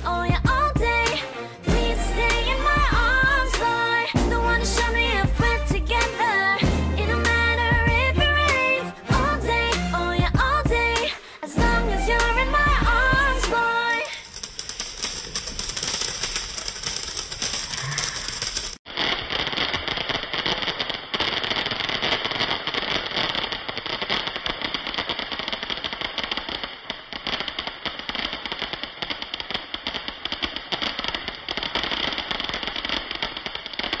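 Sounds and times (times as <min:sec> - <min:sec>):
firework crackling hiss: 0:11.0 - 0:34.0.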